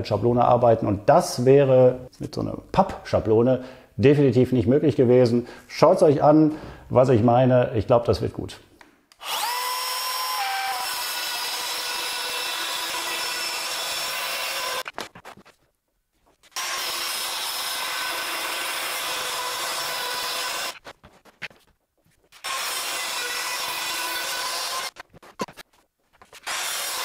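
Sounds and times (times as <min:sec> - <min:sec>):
circular saw cutting chipboard: 0:09.2 - 0:14.9, 0:16.5 - 0:20.8, 0:22.4 - 0:25.5, 0:26.4 - 0:27.0.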